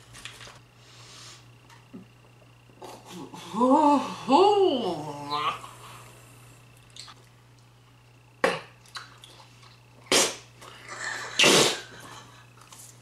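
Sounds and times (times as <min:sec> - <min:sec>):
person laughing: 0:10.8 - 0:12.5.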